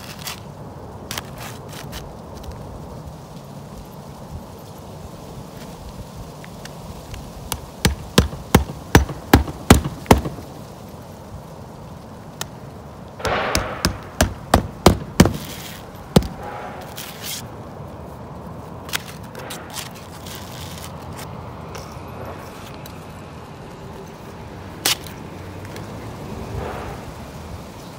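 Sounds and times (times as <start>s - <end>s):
hammer striking nails: 7.8s - 10.4s, 13.2s - 16.5s
short scrape: 15.4s - 17.5s.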